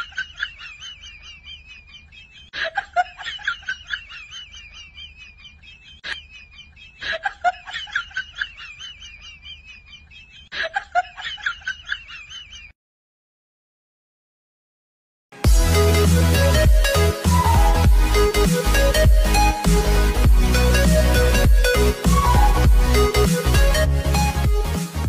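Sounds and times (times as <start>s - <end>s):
woman laughing: 0.0s - 12.8s.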